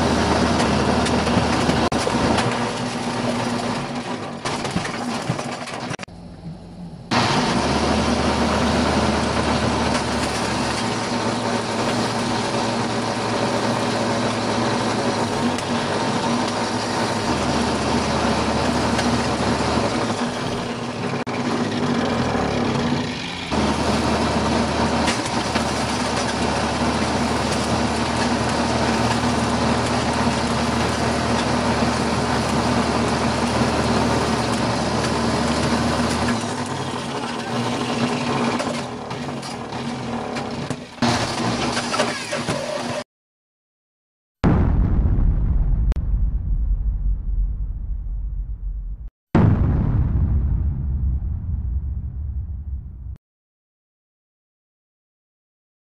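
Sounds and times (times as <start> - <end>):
grinder machine shredding: 0.0 - 6.0, 7.1 - 43.0.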